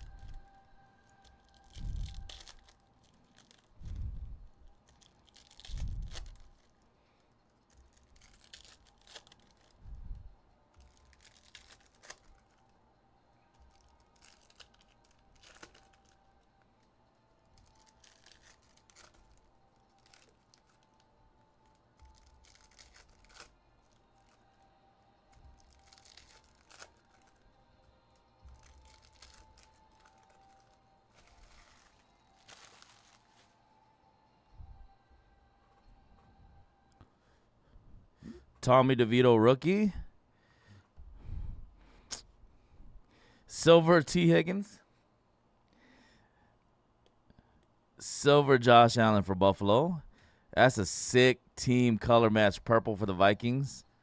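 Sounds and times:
card wrappers tearing and crinkling: 0.0 - 4.0, 4.7 - 6.8, 7.6 - 9.8, 10.7 - 12.7, 13.5 - 16.5, 17.5 - 24.6, 25.3 - 27.5, 28.4 - 33.6.

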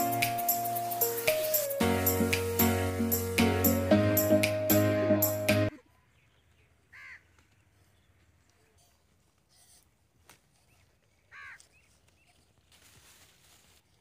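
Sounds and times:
faint rural background: 0.0 - 14.0
crow cawing: 6.9 - 7.3, 11.3 - 11.6.

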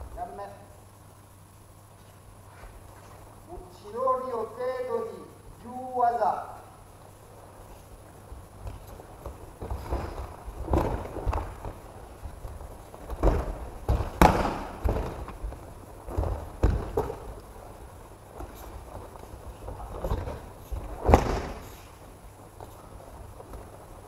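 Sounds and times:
footsteps on mats: 2.0 - 3.4, 7.5 - 24.0
bodies thudding on mats: 8.6 - 24.0.

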